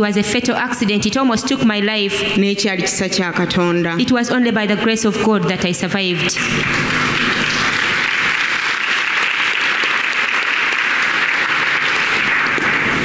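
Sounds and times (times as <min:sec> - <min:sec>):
crowd applauding: 0:06.3 - 0:13.0.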